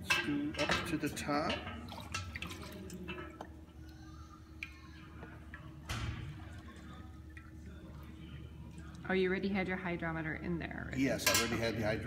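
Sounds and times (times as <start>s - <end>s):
liquid trickling and dripping: 0.1s - 9.2s.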